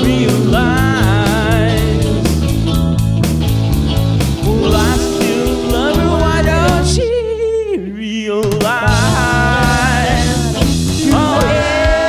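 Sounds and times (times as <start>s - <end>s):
blues instrumental with bending notes: 0.0s - 12.0s.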